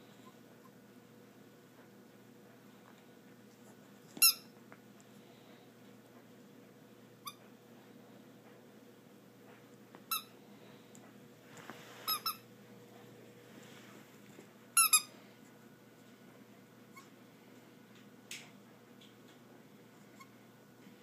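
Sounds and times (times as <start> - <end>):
squeaky dog toy squeaking: 4.2 - 4.5, 12.1 - 12.4, 14.8 - 15.1.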